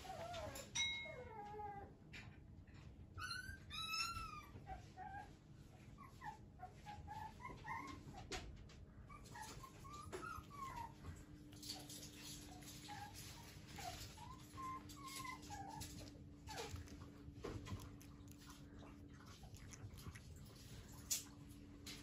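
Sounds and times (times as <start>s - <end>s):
puppy whining: 0.0s - 2.0s, 2.8s - 22.0s.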